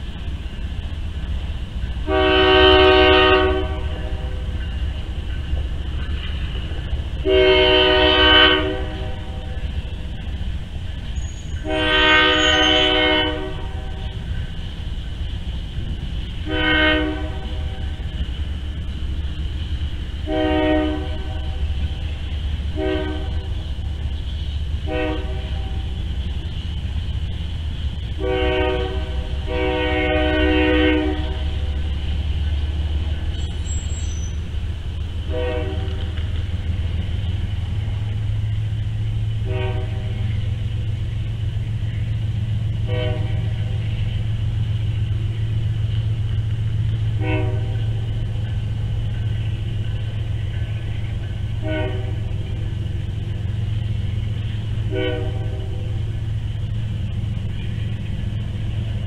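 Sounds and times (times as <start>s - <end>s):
steam locomotive whistle: 2.0s - 4.6s, 7.2s - 9.7s, 11.2s - 14.3s, 16.4s - 18.2s, 20.2s - 23.6s, 24.8s - 26.1s, 28.1s - 31.9s, 33.4s - 34.5s, 35.2s - 36.2s, 39.4s - 40.6s, 42.8s - 44.1s, 47.1s - 48.1s, 51.5s - 52.6s, 54.8s - 56.1s.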